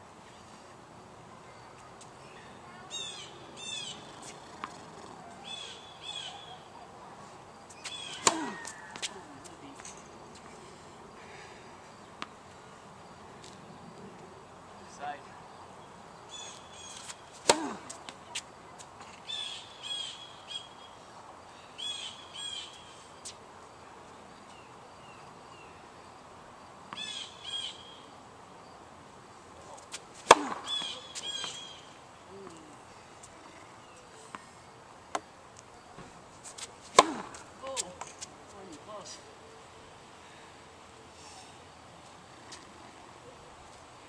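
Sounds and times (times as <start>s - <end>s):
racket hitting tennis ball: 7.7s - 10.5s, 16.9s - 18.4s, 29.8s - 31.6s, 36.4s - 38.3s.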